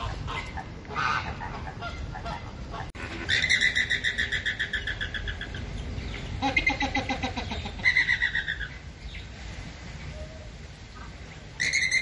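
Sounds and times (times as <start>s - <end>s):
flamingos calling: 0.0s - 8.8s, 10.9s - 12.0s.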